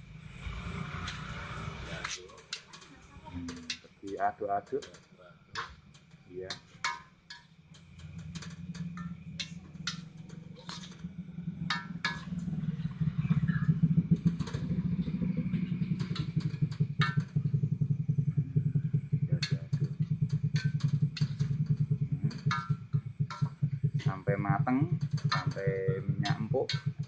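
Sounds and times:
small engine humming: 0.0s - 4.2s, 7.6s - 27.0s
metal spatula scraping a wok: 6.6s - 13.8s.

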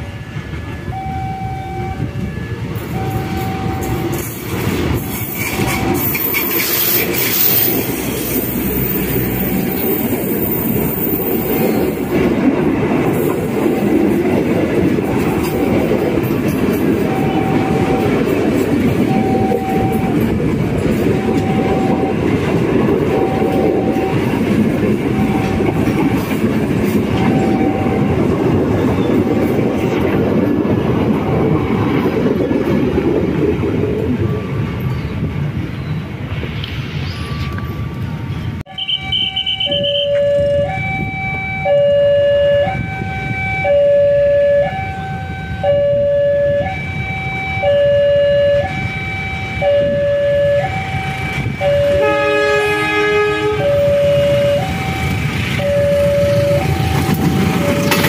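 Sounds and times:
level crossing warning beeps: 0.0s - 7.1s, 15.4s - 30.0s, 37.1s - 52.2s, 53.6s - 58.0s
train wheels rumbling on rail: 0.0s - 58.0s.

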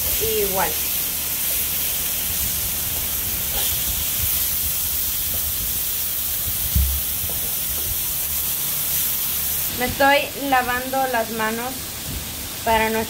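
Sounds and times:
meat sizzling on a griddle: 0.0s - 13.0s
short low thump: 6.7s - 7.0s.

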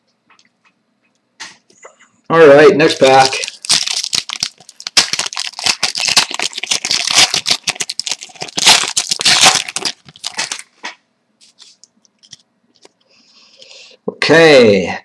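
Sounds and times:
foil wrapper crinkling and tearing: 2.9s - 13.0s.

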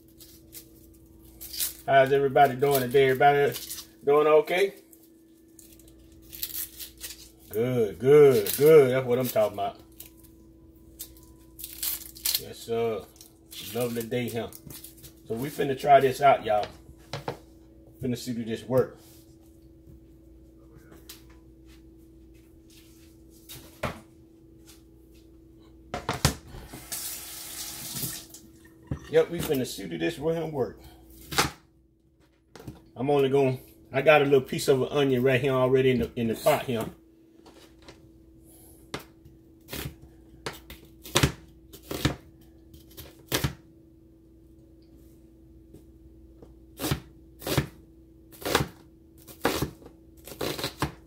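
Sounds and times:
steady kitchen hum: 0.0s - 51.0s
tap water running into sink: 26.8s - 29.1s
knife cutting onion on board: 39.7s - 43.6s, 46.8s - 51.0s.

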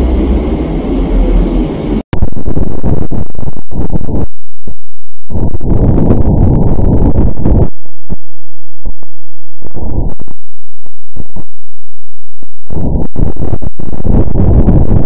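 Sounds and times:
loud low rumbling: 0.0s - 4.3s
crackles and pops: 2.2s - 15.0s.

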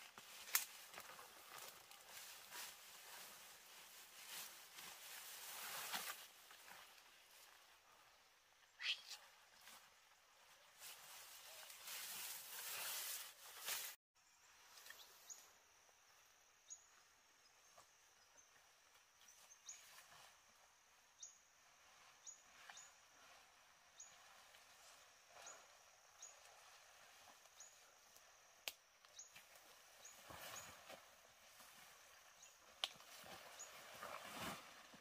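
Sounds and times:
faint outdoor ambience: 0.0s - 35.0s
high-pitched chirp: 8.8s - 9.2s.

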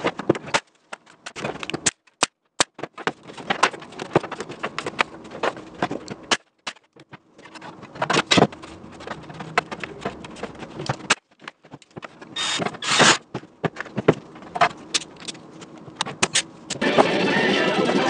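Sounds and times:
tools and sheet metal clicking: 14.6s - 16.8s.

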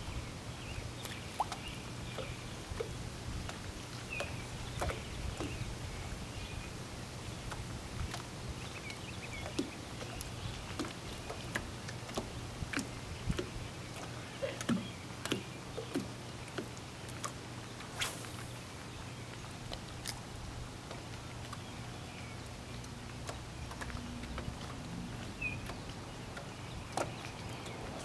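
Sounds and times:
water lapping against boat hull: 0.0s - 28.0s.

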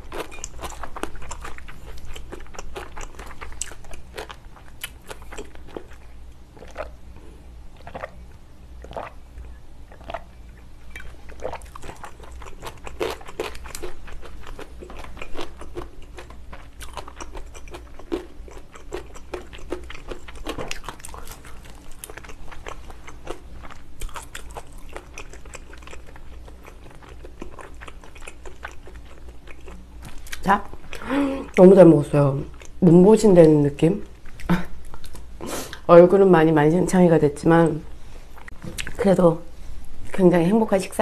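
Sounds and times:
close-miked chewing and mouth smacks: 0.0s - 31.6s, 32.5s - 32.8s.

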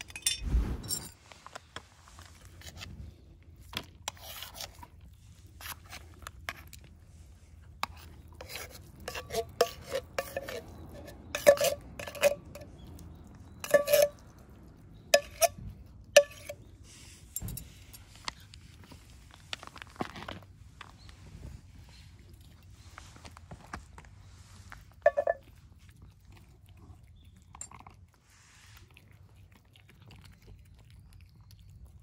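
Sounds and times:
food dish knocking and clinking: 25.0s - 25.4s.

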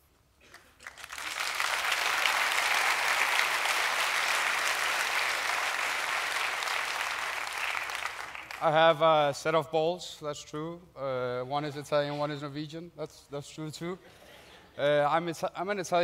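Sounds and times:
audience applauding: 0.5s - 8.8s.

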